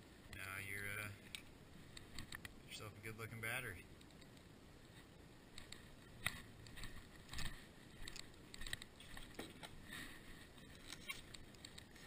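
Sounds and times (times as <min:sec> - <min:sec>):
handling knocks and rustles: 0:06.2 - 0:09.8.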